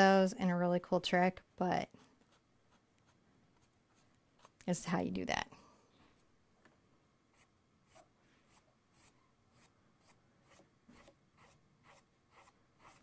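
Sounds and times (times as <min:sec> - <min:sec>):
paintbrush strokes on canvas: 0:07.3 - 0:13.0.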